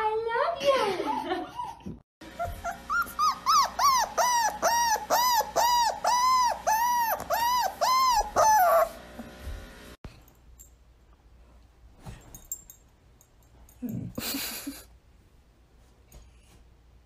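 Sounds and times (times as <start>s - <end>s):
dog whining: 1.1s - 9.0s.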